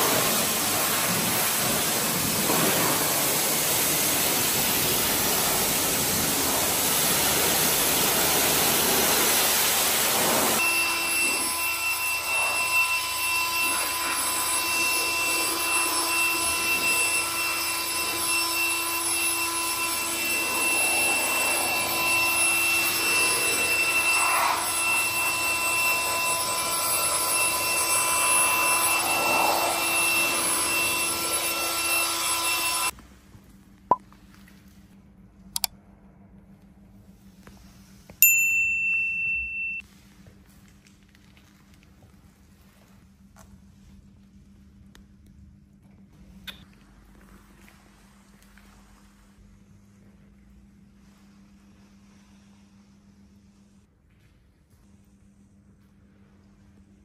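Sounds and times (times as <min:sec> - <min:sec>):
pressure washer spray hissing: 0:00.0 - 0:10.6
air blower whining: 0:00.0 - 0:33.0.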